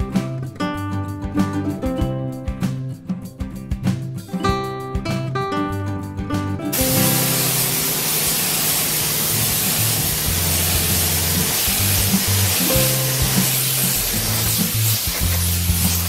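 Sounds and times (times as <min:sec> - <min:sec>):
plucked guitar music: 0:00.0 - 0:16.0
air spray gun hissing: 0:06.7 - 0:16.0.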